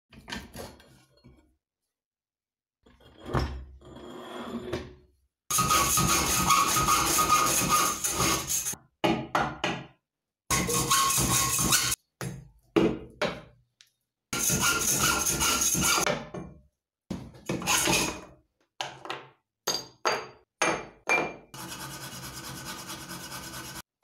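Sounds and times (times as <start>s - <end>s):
hand file rasping on steel: 5.5s - 8.8s, 10.5s - 12.0s, 14.4s - 16.1s, 21.6s - 23.9s.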